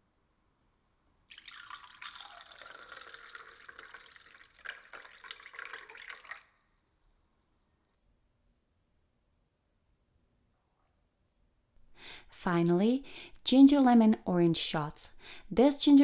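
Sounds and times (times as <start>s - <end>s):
juice poured into a glass: 1.2s - 7.1s.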